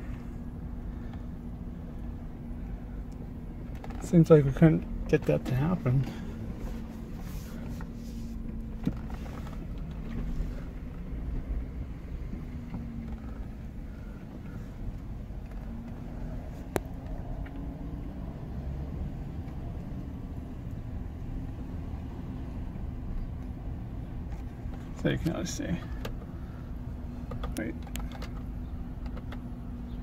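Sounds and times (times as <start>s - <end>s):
car engine rumble: 0.0s - 30.0s
road noise: 0.0s - 30.0s.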